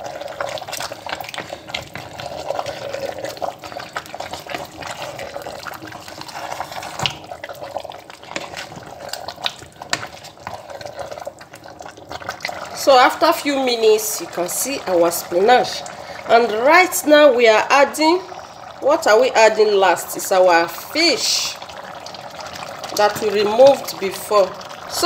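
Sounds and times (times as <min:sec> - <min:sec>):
thick soup sloshing: 0:00.0 - 0:16.3.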